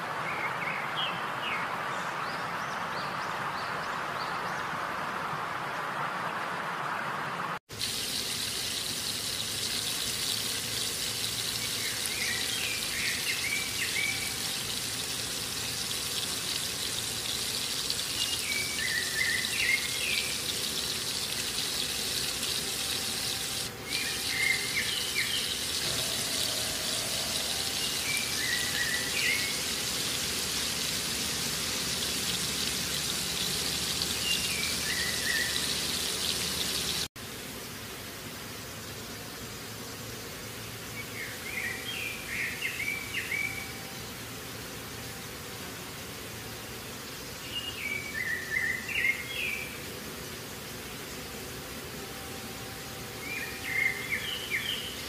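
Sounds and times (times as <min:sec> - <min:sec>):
hot oil sizzling: 0:07.7 - 0:37.2
bird chirping: 0:18.0 - 0:29.8, 0:33.6 - 0:37.0.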